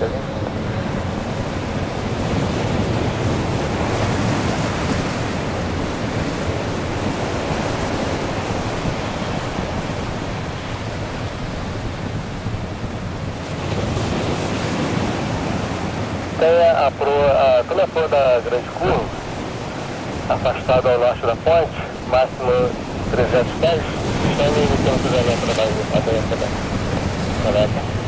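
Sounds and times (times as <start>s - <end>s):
jet engines rushing: 14.3s - 28.0s.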